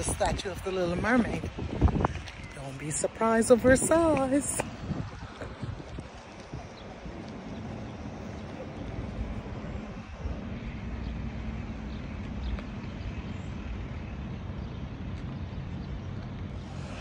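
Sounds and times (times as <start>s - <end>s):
distant propeller engine drone: 4.3s - 17.0s.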